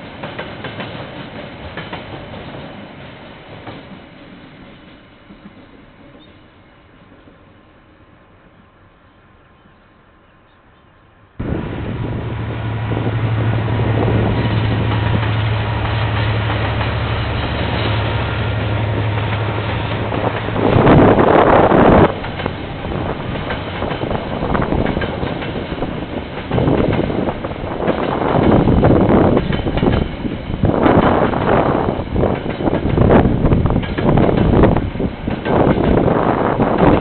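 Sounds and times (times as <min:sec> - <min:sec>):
rail wagons rumbling past: 0:00.0 - 0:37.0
diesel engine drone: 0:11.4 - 0:20.3
loud rushing noise: 0:11.4 - 0:32.3.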